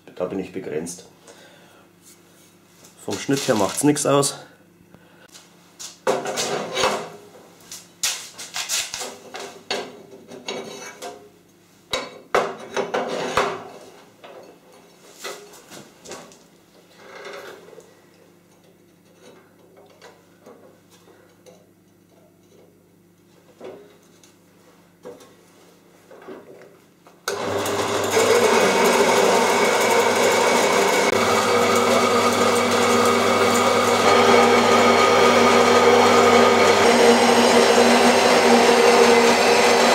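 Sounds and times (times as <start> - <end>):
band saw motor humming: 27.3 - 39.9.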